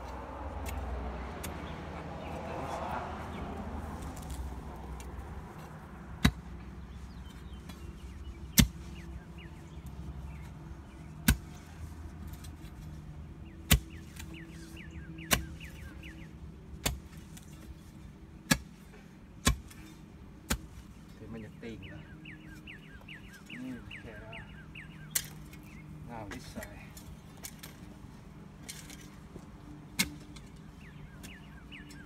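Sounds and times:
digging tool striking soil: 0.6 - 1.7, 5.6 - 6.5, 7.2 - 9.1, 11.2 - 12.8, 13.6 - 16.2, 16.8 - 20.9, 29.9 - 32.0.

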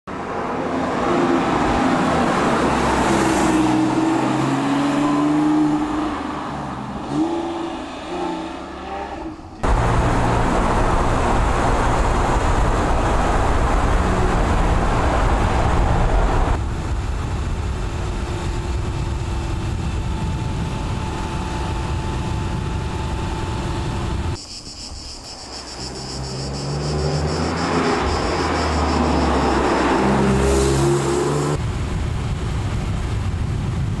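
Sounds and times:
road noise: 0.0 - 34.0
car engine accelerating through gears: 0.9 - 16.6, 26.2 - 31.6.

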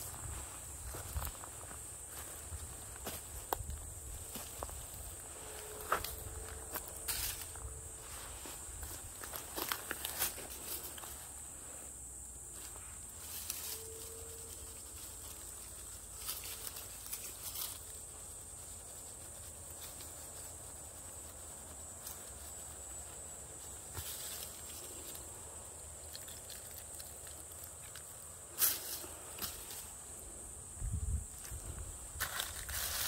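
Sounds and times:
dry leaves rustling and crackling: 13.2 - 25.3, 32.2 - 33.0.

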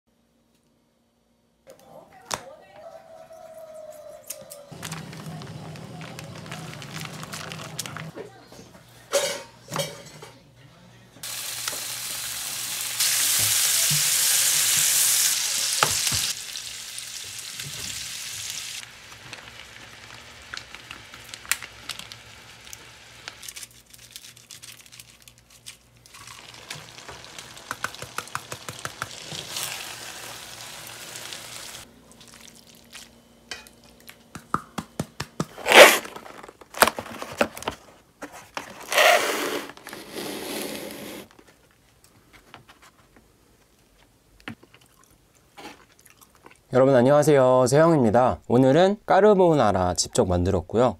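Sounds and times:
food sizzling in a pan: 11.2 - 23.4, 26.1 - 31.9.

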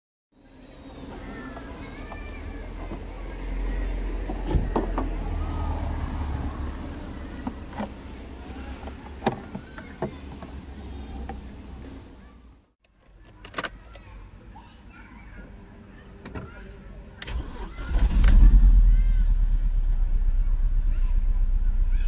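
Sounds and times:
low steady rumble: 18.1 - 22.0.

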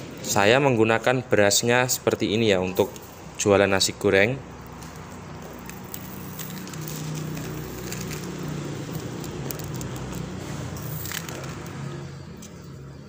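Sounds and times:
rice grains pattering on plate: 4.7 - 11.8.

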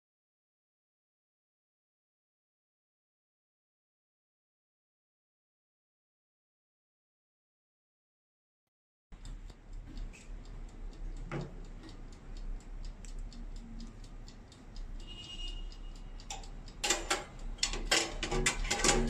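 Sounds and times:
clockwork timer ticking: 9.1 - 19.0
metal tray clicks and clatter: 16.3 - 19.0.

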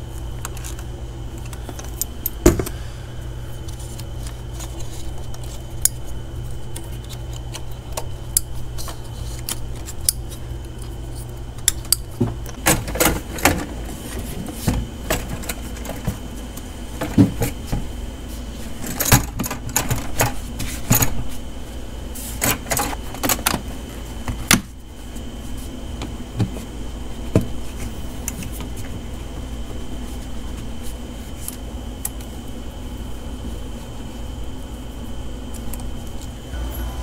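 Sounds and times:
low hum with faint whine: 0.0 - 37.0.

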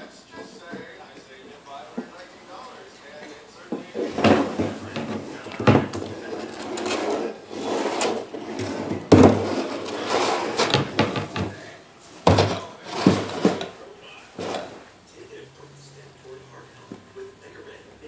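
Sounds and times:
plastic toy scraping on tile: 3.9 - 11.4, 12.8 - 13.7.

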